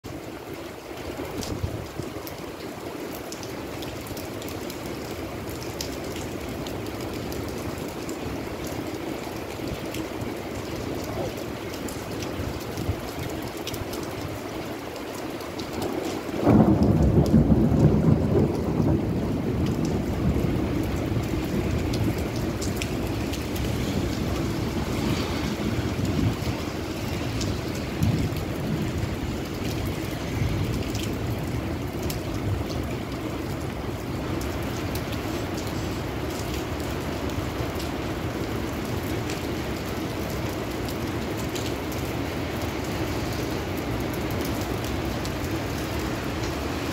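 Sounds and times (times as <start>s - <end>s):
steady rain: 0.0s - 46.9s
wind: 0.0s - 46.9s
deep thunder rumble: 16.4s - 22.8s.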